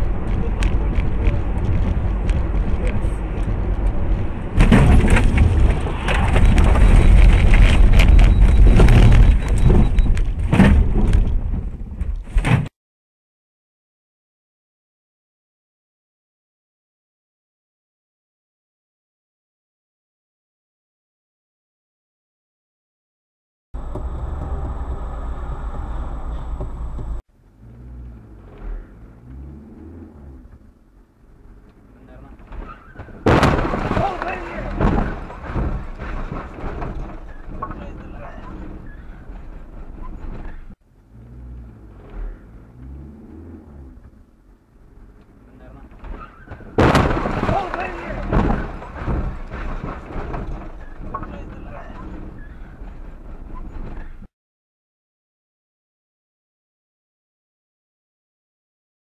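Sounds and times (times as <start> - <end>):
irregular ticks and knocks: 0.0 - 5.8
low road rumble: 0.0 - 12.7, 23.8 - 54.3
car engine pitch rising and falling: 23.8 - 31.9.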